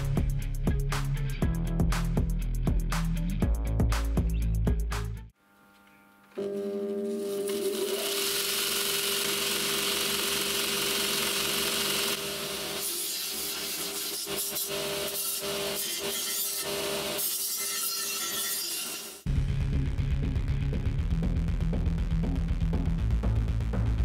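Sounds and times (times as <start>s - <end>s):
metal grinding rasp: 12.8s - 19.2s.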